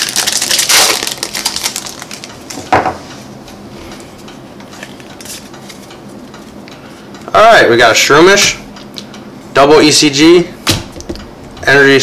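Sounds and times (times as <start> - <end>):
foil wrapper crinkling: 0.0 - 2.6.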